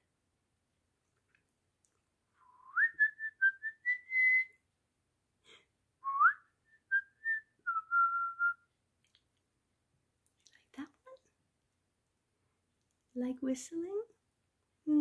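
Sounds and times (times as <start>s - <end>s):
person whistling: 2.4s - 4.6s, 6.0s - 8.7s.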